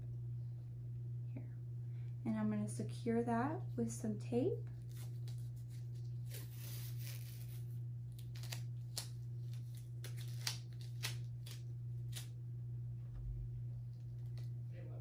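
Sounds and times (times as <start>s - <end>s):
steady low hum: 0.0s - 15.0s
tape peeling off roll: 4.8s - 12.3s
tape ripping: 4.8s - 12.3s.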